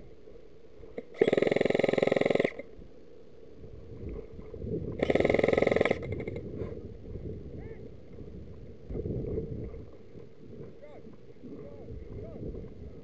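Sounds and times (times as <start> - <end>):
airsoft gun full-auto bursts: 1.2 - 2.6, 5.0 - 6.0.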